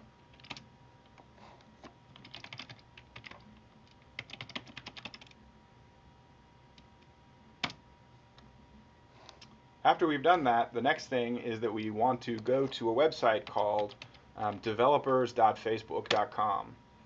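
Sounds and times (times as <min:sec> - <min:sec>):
computer keyboard typing: 0:00.3 - 0:00.7, 0:02.1 - 0:05.4, 0:13.4 - 0:14.6.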